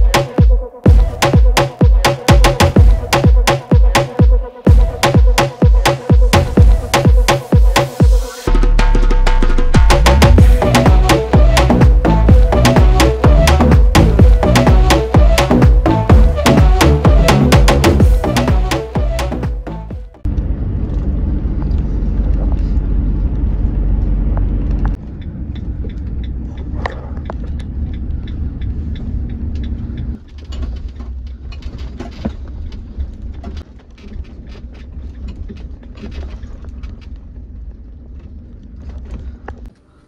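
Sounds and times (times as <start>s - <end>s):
van engine and road rumble: 4.7s - 39.9s.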